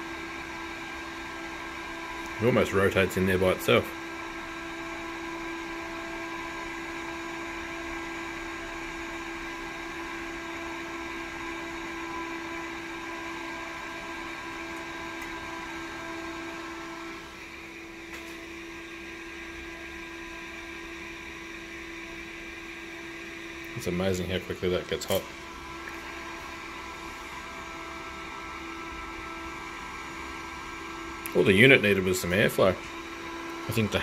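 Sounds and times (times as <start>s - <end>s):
cooling fan whirring: 0.0s - 34.0s.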